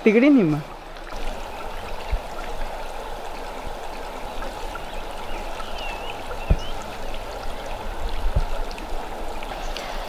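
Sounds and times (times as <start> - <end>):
rushing stream-like noise: 0.0 - 10.0
low thump: 6.5 - 6.7.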